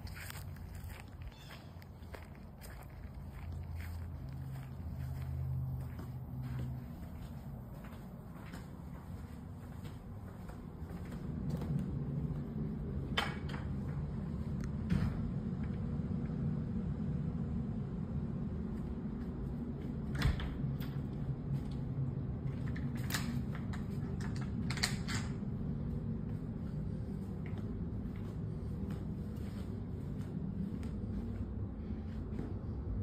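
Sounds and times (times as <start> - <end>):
footsteps on carpet: 0.0 - 12.8, 25.8 - 33.0
steady low rumble: 0.0 - 33.0.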